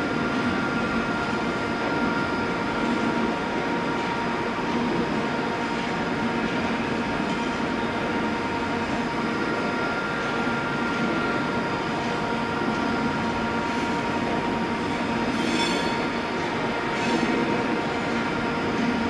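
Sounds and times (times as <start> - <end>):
high squeal of train wheels: 14.9 - 17.5.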